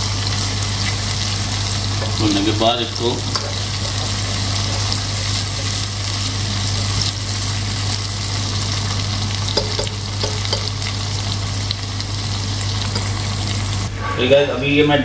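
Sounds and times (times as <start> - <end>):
onions sizzling in hot oil: 0.0 - 13.9
spoon stirring in pot: 9.5 - 10.9.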